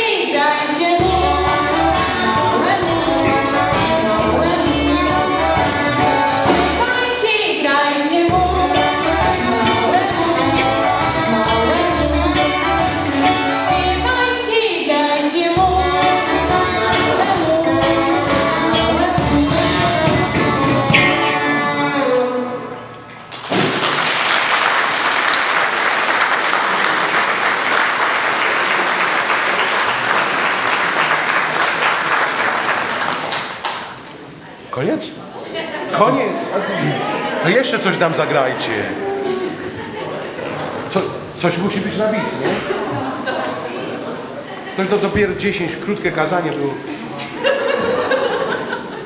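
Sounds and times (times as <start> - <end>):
person singing: 0.0 - 22.9
electric guitar: 15.6 - 23.2
congregation applauding: 23.1 - 34.1.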